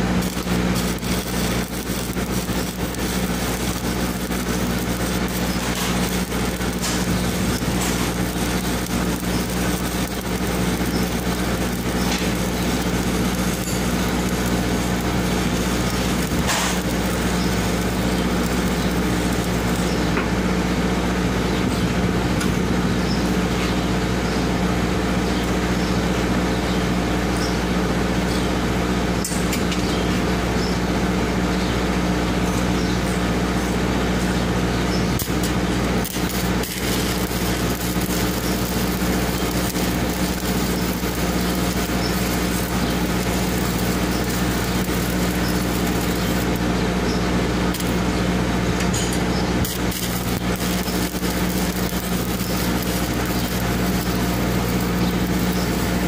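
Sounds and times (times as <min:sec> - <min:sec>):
engine idling: 0:00.0 - 0:20.2, 0:35.2 - 0:48.8
welding arc crackle: 0:00.0 - 0:20.4, 0:33.7 - 0:56.0.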